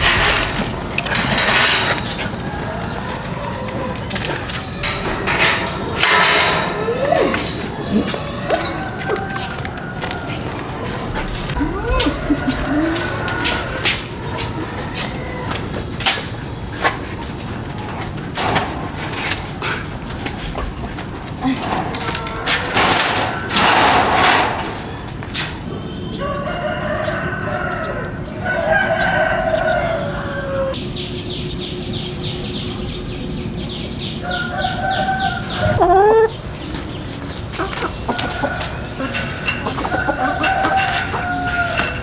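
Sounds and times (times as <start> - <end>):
hens clucking: 0.0 - 23.7, 34.3 - 42.0
roosters crowing: 0.0 - 30.8, 34.1 - 42.0.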